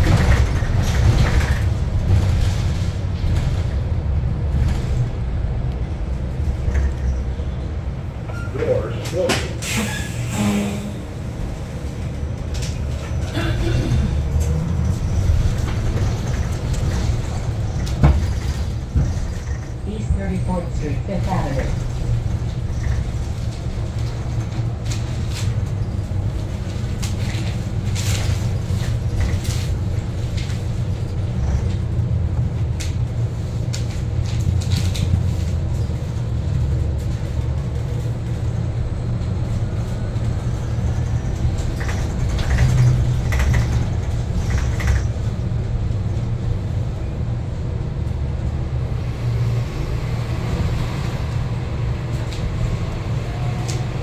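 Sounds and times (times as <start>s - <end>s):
low rumble of bus: 0.0s - 54.0s.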